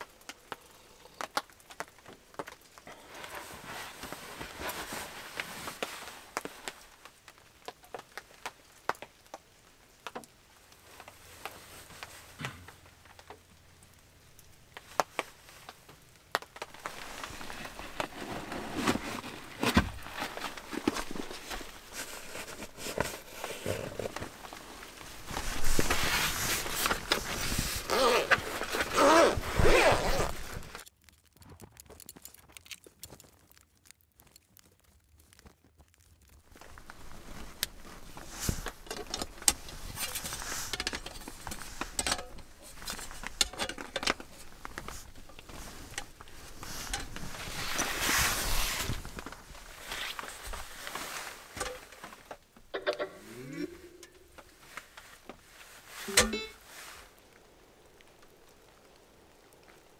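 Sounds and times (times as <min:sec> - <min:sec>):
fabric rustling: 0:02.2 - 0:07.2, 0:14.8 - 0:30.8, 0:36.5 - 0:52.6
thin metal poles clinking: 0:56.0 - 0:56.6.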